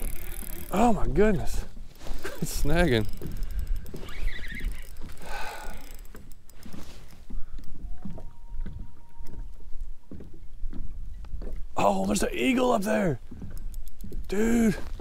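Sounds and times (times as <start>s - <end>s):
water lapping against kayak hull: 0.0s - 15.0s
wind rumble on microphone: 6.7s - 11.8s.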